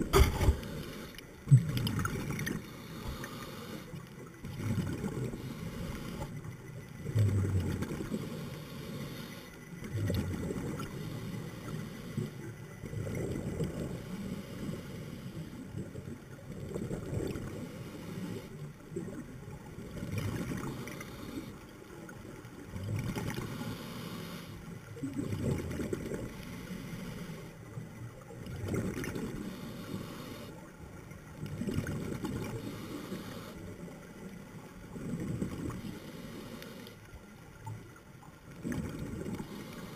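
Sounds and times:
diver in-breaths: 0.0 - 1.3, 2.5 - 4.0, 5.2 - 6.4, 8.1 - 9.7, 13.9 - 15.7, 20.6 - 21.7, 23.3 - 24.7, 26.3 - 27.6, 29.3 - 30.6, 32.5 - 33.8, 35.7 - 37.1, 39.3 - 39.9.

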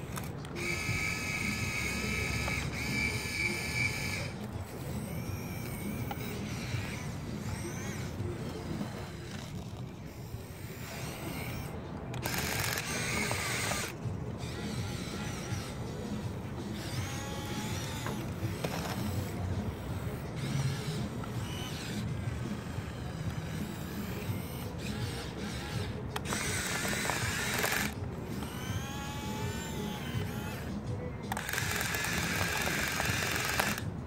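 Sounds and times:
model excavator motors whirring: 0.0 - 34.0.

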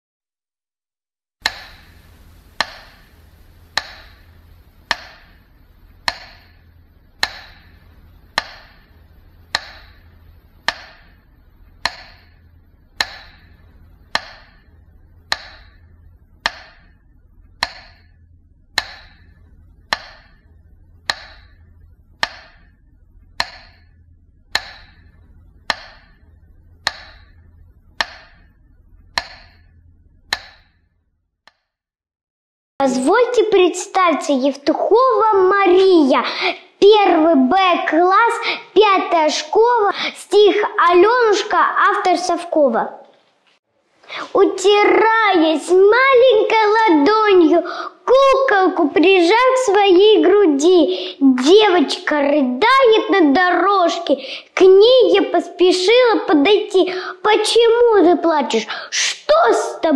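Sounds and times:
faint low hum: 1.4 - 31.2, 32.8 - 59.9
sharp ringing knock: 13.0 - 13.4, 18.8 - 19.3, 24.6 - 25.1, 29.1 - 29.7, 30.3 - 30.8.

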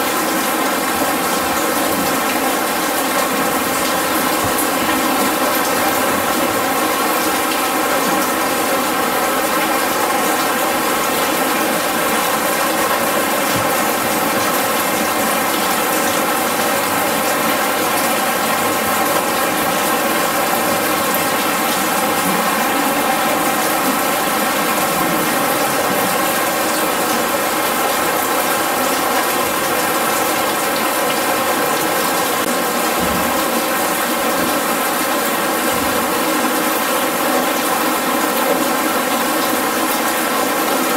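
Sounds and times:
artificial rain falling: 0.0 - 40.9.

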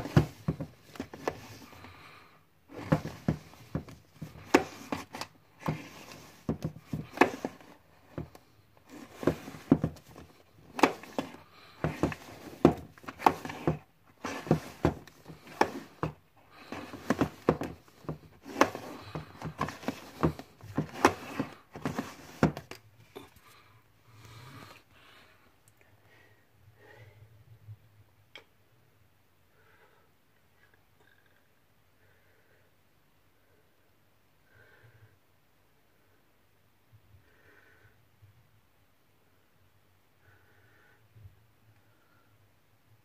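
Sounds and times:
plastic disc cases clacking: 0.0 - 1.8, 2.7 - 22.8.

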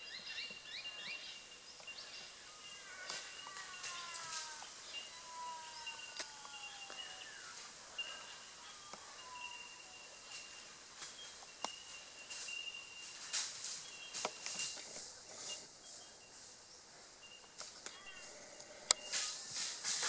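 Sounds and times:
small birds chirping: 0.0 - 20.0
footsteps crunching dry leaves: 3.2 - 5.2, 6.4 - 16.6.

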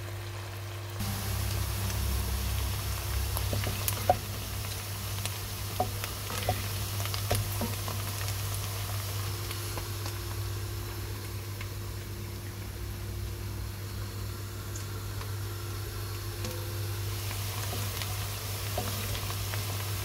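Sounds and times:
onions sizzling in hot oil: 0.1 - 20.0
steady low hum: 0.9 - 20.0
wooden spoon stirring: 1.1 - 9.6, 17.3 - 20.0.

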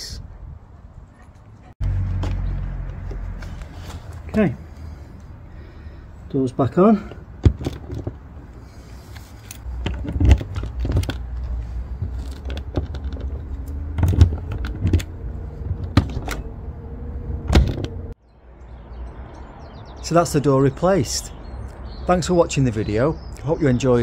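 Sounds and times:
locker door clicks and knocks: 17.5 - 18.0.

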